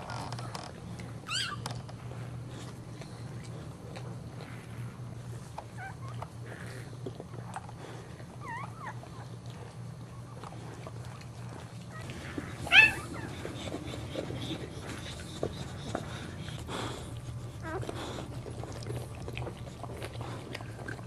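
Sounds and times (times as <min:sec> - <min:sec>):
puppy crying: 0:01.2 - 0:01.8, 0:05.8 - 0:06.2, 0:11.9 - 0:16.0, 0:17.6 - 0:17.9
puppy squeaking: 0:01.2 - 0:01.8, 0:12.6 - 0:13.7.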